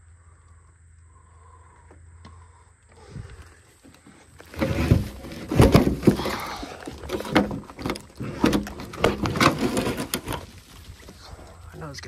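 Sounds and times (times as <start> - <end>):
wooden boards knocking and scraping: 4.4 - 11.2.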